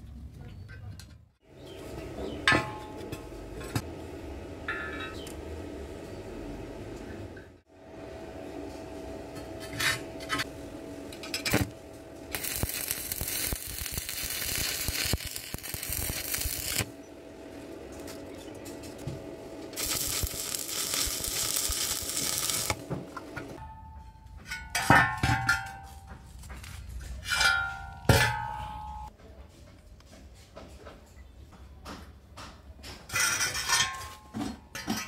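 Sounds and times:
arc welding crackling: 0:11.1 - 0:16.9, 0:19.7 - 0:22.9.

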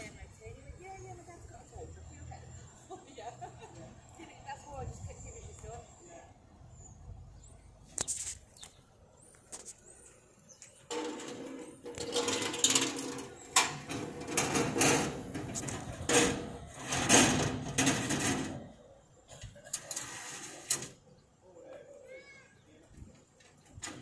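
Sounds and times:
recovery truck mechanical rattling: 0:10.9 - 0:21.0.

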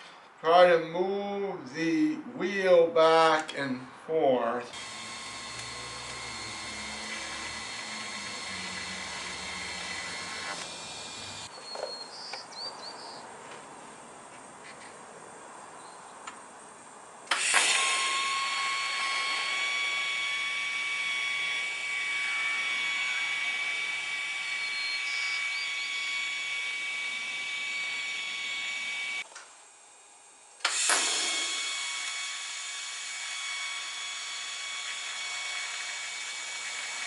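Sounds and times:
power tool whining: 0:04.7 - 0:11.9, 0:17.3 - 0:29.4, 0:30.6 - 0:37.0.

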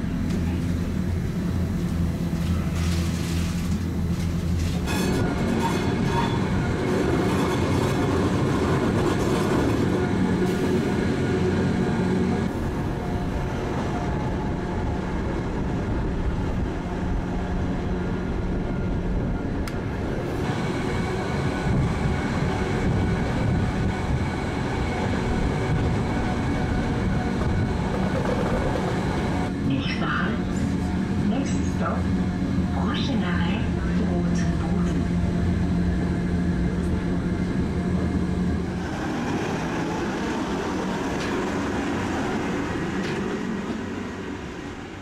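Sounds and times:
train running gear rumbling on track: 0:00.0 - 0:45.0.

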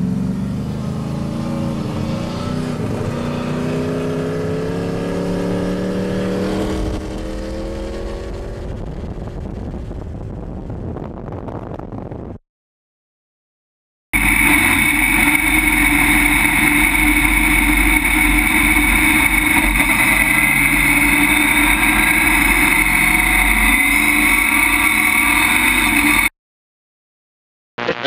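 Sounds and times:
race car engine running: 0:14.2 - 0:26.3.

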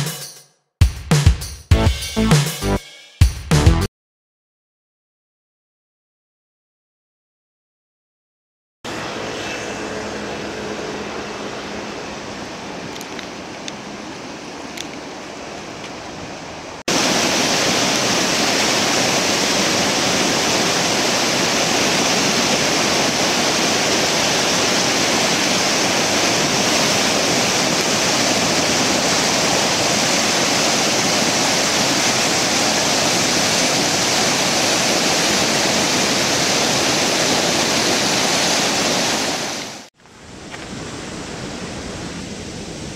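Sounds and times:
river rushing through rapids: 0:08.9 - 0:42.9.

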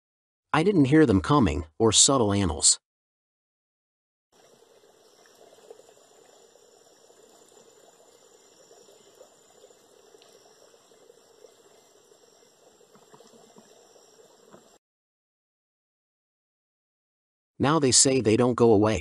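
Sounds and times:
insects droning: 0:04.4 - 0:14.8
soft crackling hiss: 0:04.4 - 0:14.8.

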